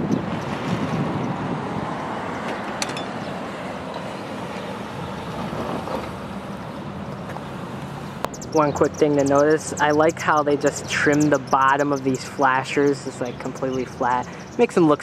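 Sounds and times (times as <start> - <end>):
wind on microphone: 0.0 - 7.2
road traffic noise: 0.0 - 15.0.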